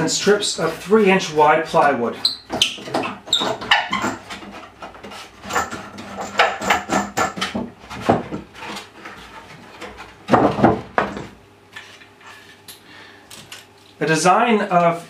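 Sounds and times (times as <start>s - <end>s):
wooden knocks and clatter: 2.5s - 11.4s.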